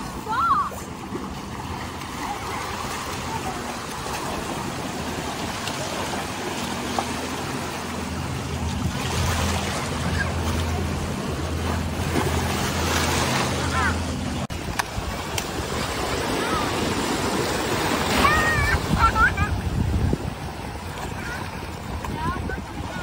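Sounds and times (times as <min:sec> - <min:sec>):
waves washing over beach: 0:00.0 - 0:23.0.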